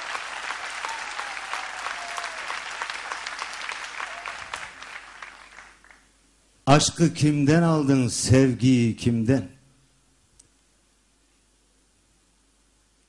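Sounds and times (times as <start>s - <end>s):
audience applauding: 0.0s - 6.1s.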